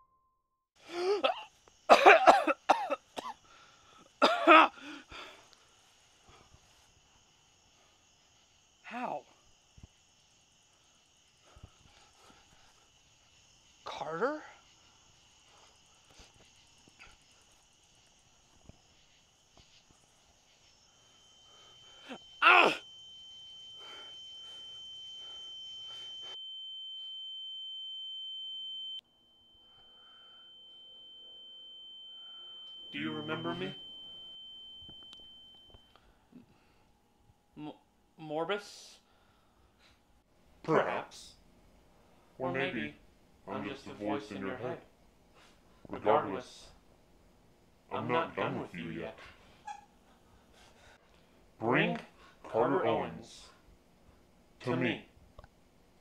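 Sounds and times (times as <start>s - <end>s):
crickets chirring: 0.8s - 26.4s, 29.4s - 36.8s
man coughing: 0.9s - 3.4s, 4.2s - 5.0s
high-pitched ringing tone: 1.3s - 40.0s
loud cry-like sound falling: 22.4s - 22.8s.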